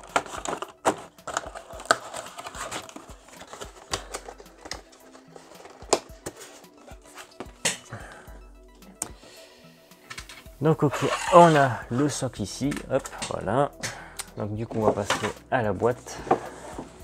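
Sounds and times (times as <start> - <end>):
cardboard and plastic rustling: 0.0 - 7.6.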